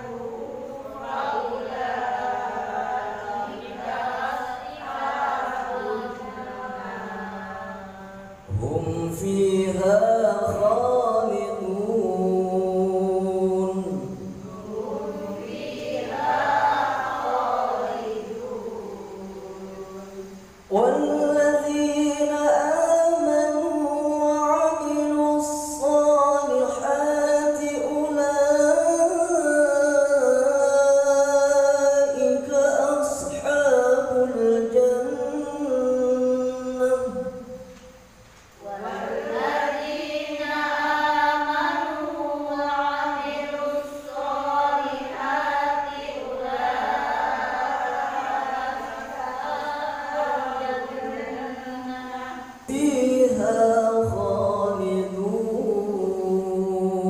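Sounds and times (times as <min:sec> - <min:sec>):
man reciting melodically: 0:07.8 - 0:15.4, 0:18.2 - 0:38.7, 0:52.5 - 0:57.0.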